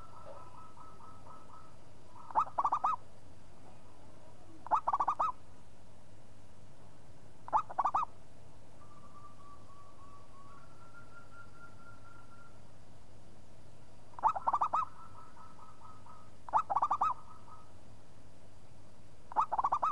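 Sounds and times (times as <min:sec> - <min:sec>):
dove cooing: 0:00.0 - 0:03.0, 0:04.6 - 0:05.4, 0:07.5 - 0:08.1, 0:14.2 - 0:17.7, 0:19.3 - 0:19.9.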